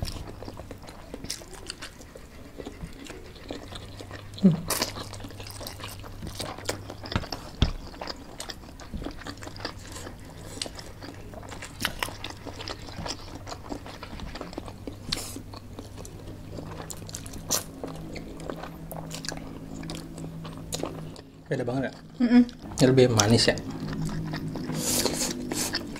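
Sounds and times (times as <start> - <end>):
chewing and biting: 0.0 - 25.9
noodles slurped: 23.2 - 25.9.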